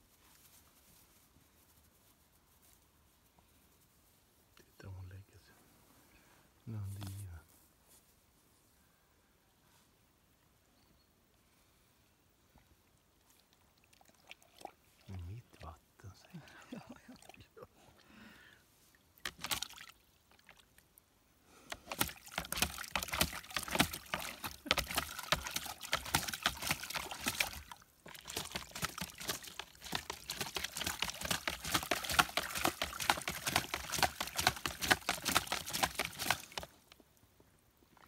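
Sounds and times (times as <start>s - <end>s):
dog splashing in water: 19.2s - 20.6s, 21.7s - 36.8s.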